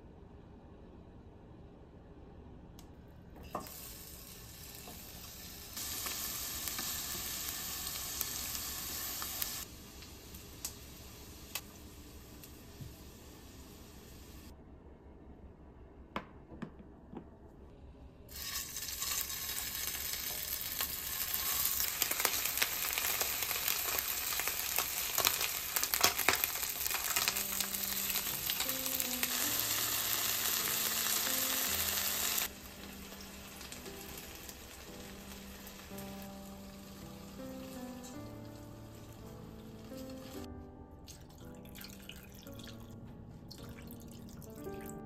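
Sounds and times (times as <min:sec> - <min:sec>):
food sizzling in frying pan: 0:03.6 - 0:14.5, 0:18.3 - 0:40.5
soft background music: 0:19.9 - 0:45.0.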